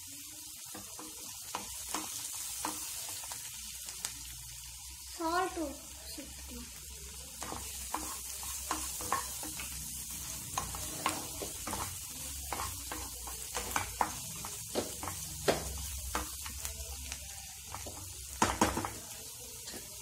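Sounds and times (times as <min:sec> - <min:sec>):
food sizzling in a frying pan: 0:00.0 - 0:20.0
wooden spatula knocking a pan: 0:12.5 - 0:16.4, 0:17.7 - 0:19.0.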